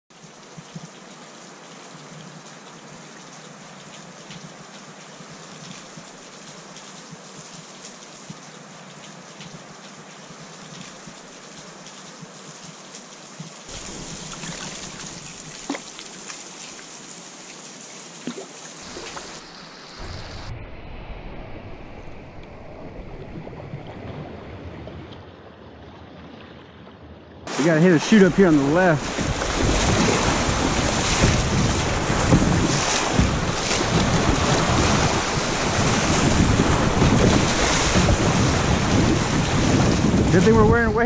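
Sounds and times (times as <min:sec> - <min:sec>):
paddle drips and splashes: 0:00.1 - 0:20.5, 0:23.2 - 0:40.3
moving river water: 0:00.1 - 0:41.0
river rapids rushing against a kayak: 0:13.7 - 0:17.0, 0:18.2 - 0:20.5, 0:27.5 - 0:41.0
wind buffeting the microphone: 0:28.1 - 0:41.0.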